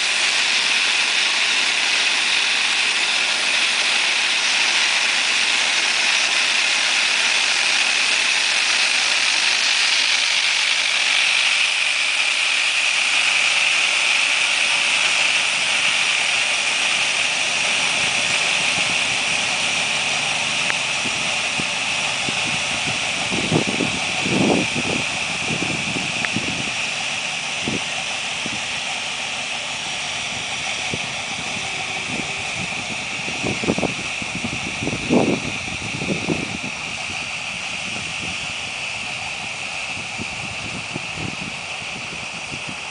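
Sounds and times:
sprayer hissing: 0.0s - 42.9s
tractor engine running: 0.0s - 42.9s
short low rumbles: 14.8s - 42.8s.

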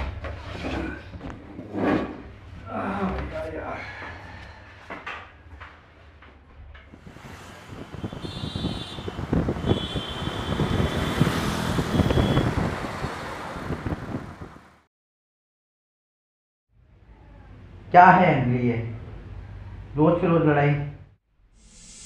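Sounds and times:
cars and scooters passing: 6.6s - 14.9s.

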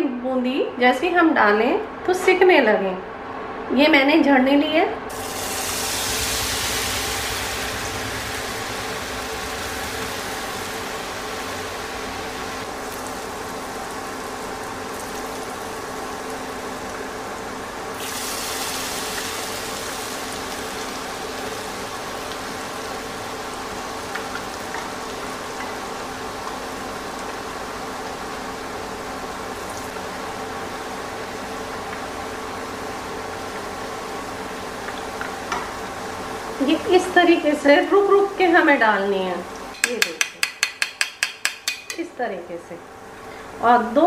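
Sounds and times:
batter frying in hot ghee: 5.1s - 38.8s.

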